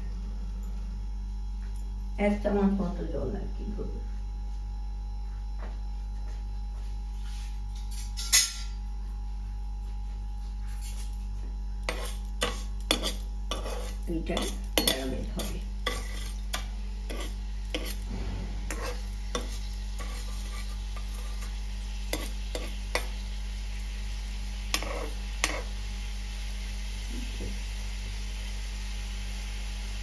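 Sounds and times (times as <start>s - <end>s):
spoon scraping and clinking pan: 11.9s - 18.0s, 18.6s - 23.1s, 24.7s - 25.7s.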